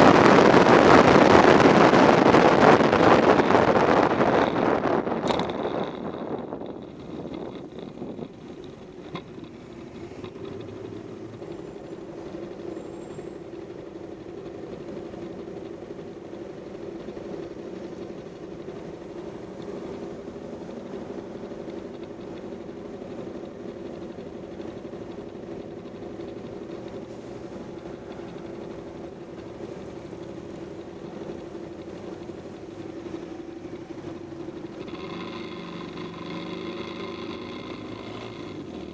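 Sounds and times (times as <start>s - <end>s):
riding wind rushing: 0.0s - 12.7s
motorcycle engine idling: 5.3s - 38.9s.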